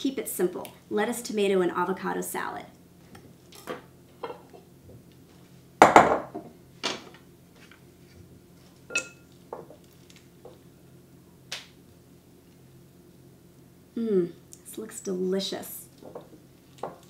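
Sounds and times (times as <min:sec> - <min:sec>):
glass bowl clink: 0:08.9 - 0:09.3.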